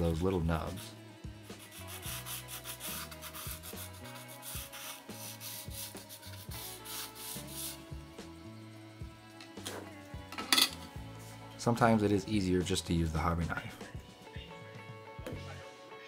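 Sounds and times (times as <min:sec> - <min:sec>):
file rubbing on plastic: 0:00.6 - 0:07.8.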